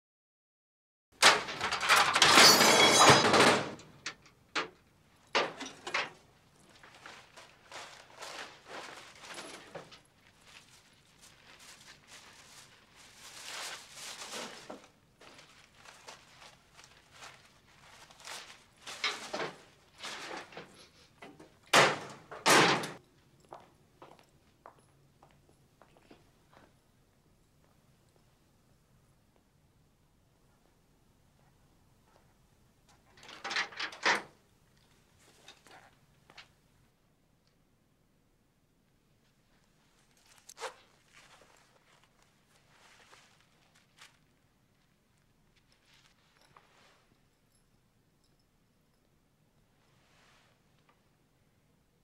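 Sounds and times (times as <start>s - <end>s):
metal locker rattling open: 1.2s - 4.8s, 5.4s - 6.2s, 19.0s - 20.6s, 21.7s - 23.0s, 33.2s - 34.4s
paper bag rustling: 6.0s - 21.2s, 40.0s - 46.4s
metal locker door handled: 21.3s - 23.0s.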